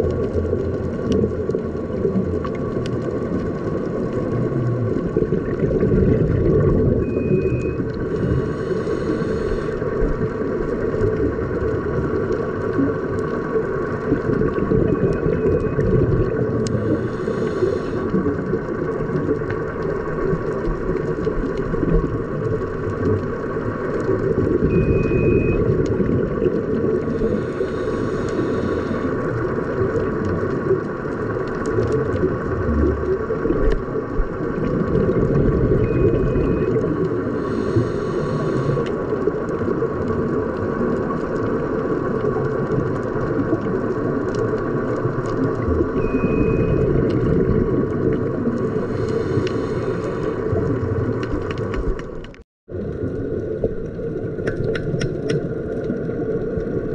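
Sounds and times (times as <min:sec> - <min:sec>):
exhaled bubbles hissing: 0:00.0 - 0:56.9
faint steady hums: 0:00.0 - 0:56.9
underwater low rumble: 0:00.0 - 0:56.9
regulator inhale tone: 0:07.1 - 0:10.4, 0:16.5 - 0:18.5, 0:27.0 - 0:29.4, 0:35.8 - 0:39.2, 0:48.6 - 0:51.2.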